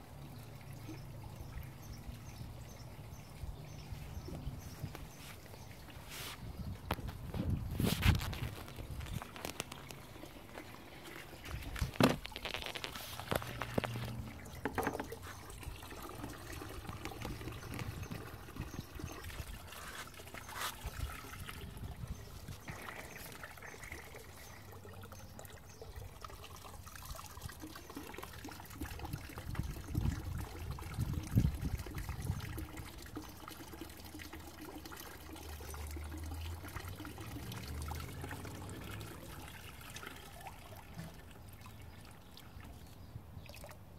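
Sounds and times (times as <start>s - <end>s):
water pouring into a barrel: 0.0s - 43.9s
pump valve knocks and clunks: 11.6s - 12.3s, 13.7s - 15.2s.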